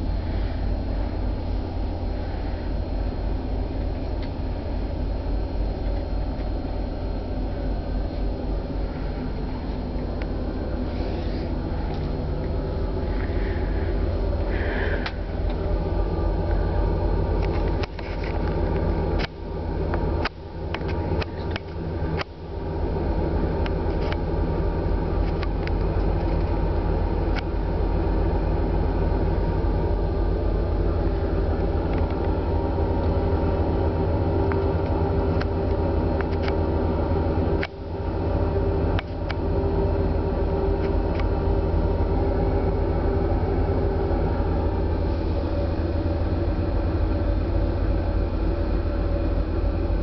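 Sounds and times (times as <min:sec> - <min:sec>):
ferry engines droning: 0:00.0 - 0:50.0.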